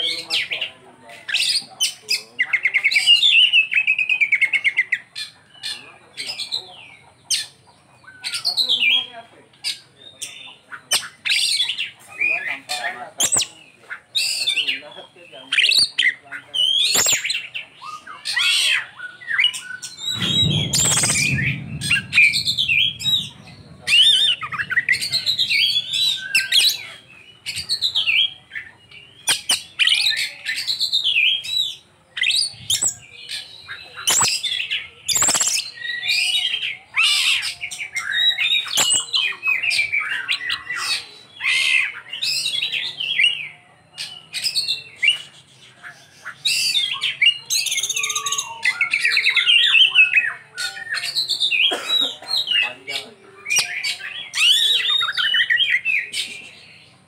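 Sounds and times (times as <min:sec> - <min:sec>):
songbird singing: 0:00.0 - 0:57.0.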